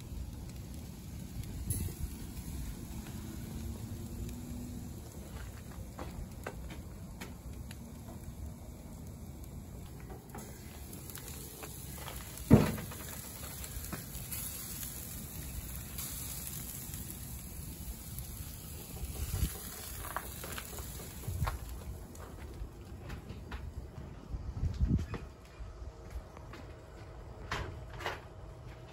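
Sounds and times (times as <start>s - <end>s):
meat sizzling on a grill: 0.0s - 22.2s.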